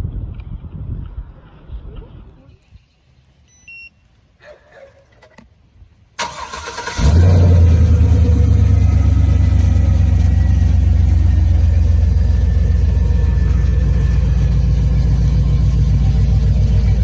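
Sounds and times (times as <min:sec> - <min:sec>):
engine cranking: 0:06.2 - 0:15.3
car engine deep idle: 0:07.0 - 0:17.0.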